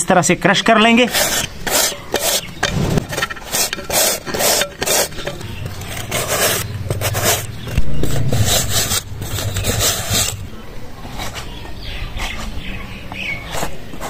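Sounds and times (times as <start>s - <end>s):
gourd rasping on grater: 1.0s - 10.5s
low hum: 5.4s - 11.0s.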